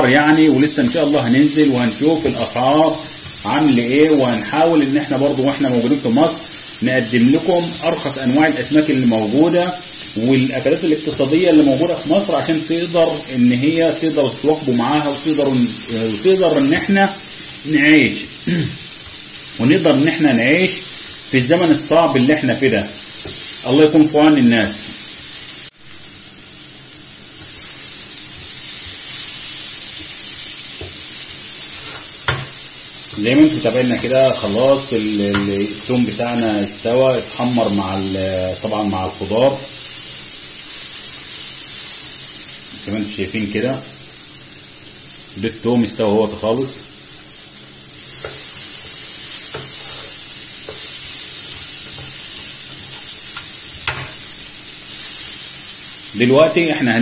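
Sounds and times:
vegetables sizzling in oil: 0:00.0 - 0:57.0
spatula knocking and scraping pan: 0:31.7 - 0:33.6, 0:35.3 - 0:35.6, 0:48.2 - 0:54.2.

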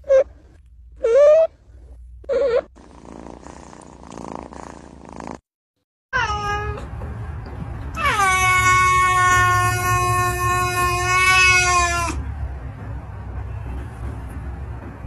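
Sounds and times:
cat meowing: 0:06.2 - 0:06.9, 0:08.0 - 0:12.2.

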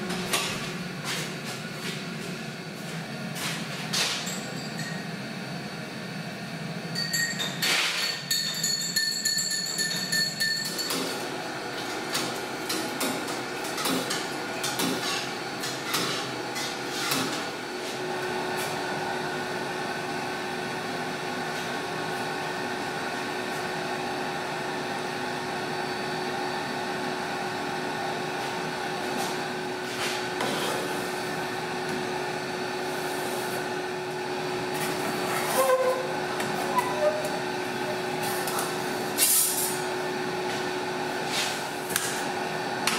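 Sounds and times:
spoon clinking against glass: 0:07.0 - 0:11.0
short squeaks: 0:35.4 - 0:37.4.

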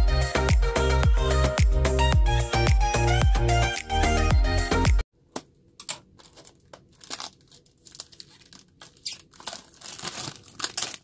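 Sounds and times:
plastic wrap crinkling and tearing: 0:06.1 - 0:11.0.

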